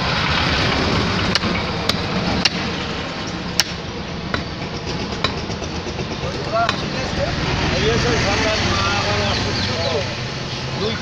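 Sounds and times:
steady background noise: 0.0 - 11.0
cleaver chopping on wooden block: 3.6 - 4.5.

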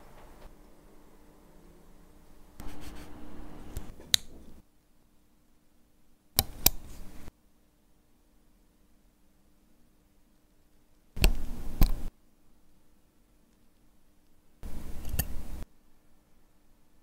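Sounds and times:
tweezers scraping metal: 14.7 - 15.6.

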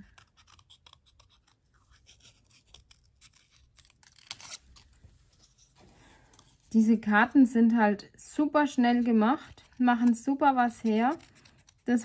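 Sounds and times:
scissors snipping paper: 0.0 - 5.0, 9.5 - 12.0.

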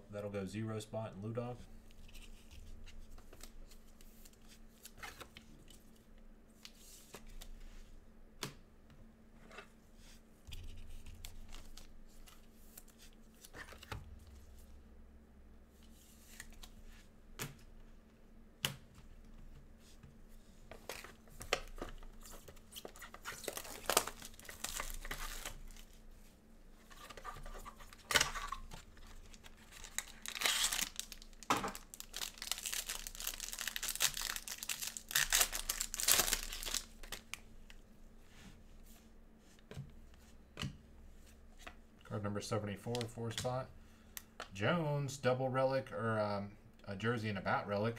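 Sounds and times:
plastic wrapper crinkling and tearing: 20.9 - 25.9, 27.1 - 37.4.

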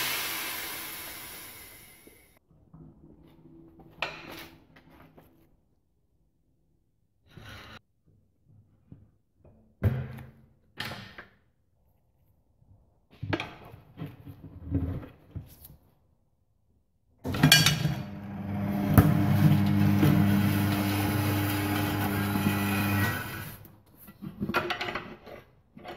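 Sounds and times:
electric turntable motor humming: 18.0 - 23.5.

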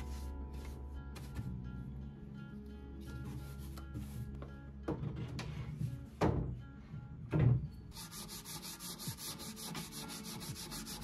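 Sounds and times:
sandpaper rubbing on wood: 8.0 - 11.0.

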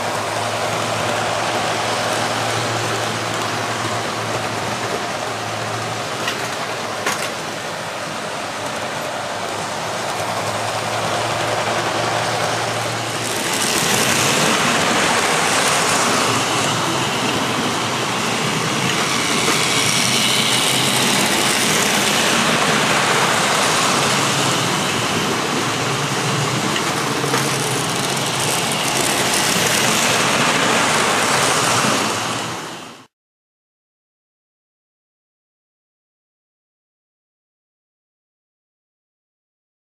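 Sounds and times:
wheels rumbling on rail: 0.0 - 33.1
electric motor whir: 12.0 - 24.8, 26.9 - 31.4.

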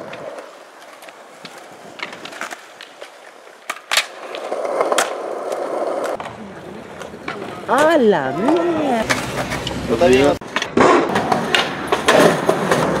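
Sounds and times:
skateboard wheels clacking: 0.0 - 9.8, 10.4 - 13.0
skateboard scraping along ledge: 0.0 - 13.0
skateboard pop and landing crack: 1.4 - 6.4, 10.5 - 13.0.

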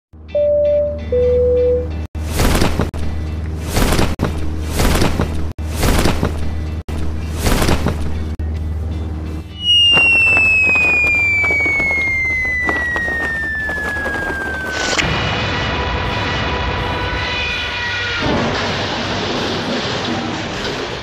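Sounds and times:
cartoon falling whistle: 9.5 - 15.0.

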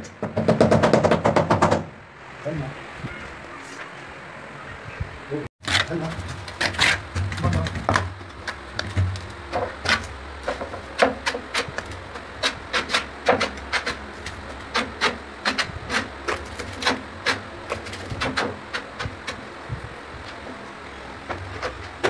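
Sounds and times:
taps knocks and scrapes on tile: 6.0 - 19.4.

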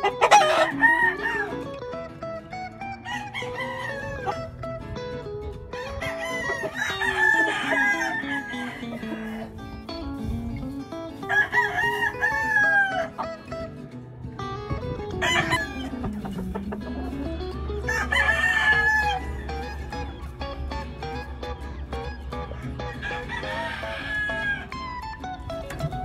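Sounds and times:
background music: 0.0 - 26.0
rooster crowing: 0.2 - 1.7, 3.0 - 4.4, 5.8 - 9.6, 11.2 - 13.3, 15.2 - 15.9, 17.8 - 19.8, 22.5 - 24.8.

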